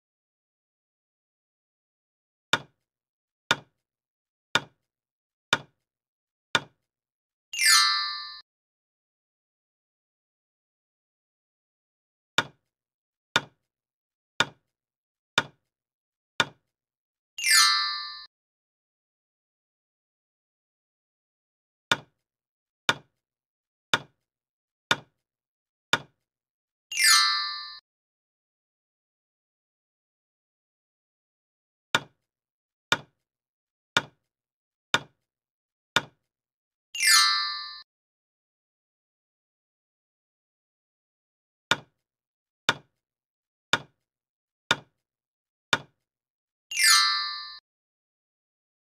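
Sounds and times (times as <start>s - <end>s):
bright chime with held tones: 7.6s - 8.4s, 26.9s - 27.8s, 37.0s - 37.8s, 46.7s - 47.6s.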